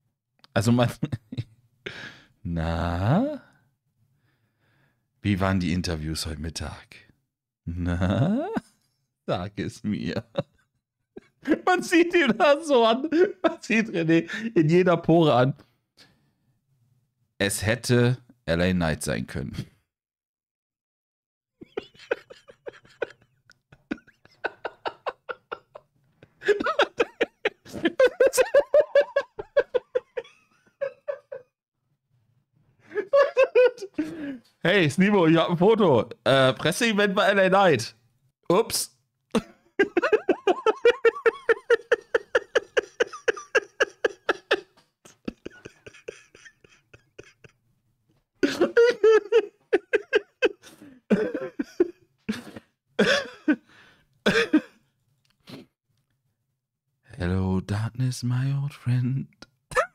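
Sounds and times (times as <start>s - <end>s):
man laughing hard: 7.9s - 8.6s, 21.6s - 31.5s, 32.9s - 34.4s, 39.4s - 47.6s, 48.4s - 53.6s, 54.3s - 54.7s.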